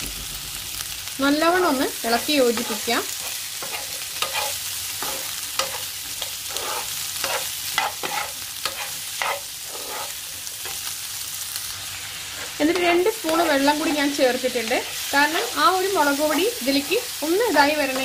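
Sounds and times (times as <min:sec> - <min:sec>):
hot oil sizzling: 0:00.0 - 0:18.0
metal spoon scraping a pan: 0:02.2 - 0:10.9.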